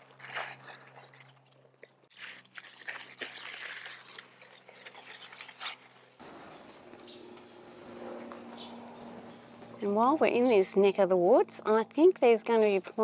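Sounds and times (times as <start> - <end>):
leaves and vines rustling: 0.0 - 9.3.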